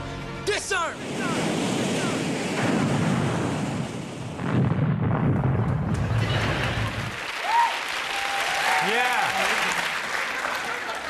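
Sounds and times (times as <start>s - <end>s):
deep rumbling explosion: 1.0s - 7.2s.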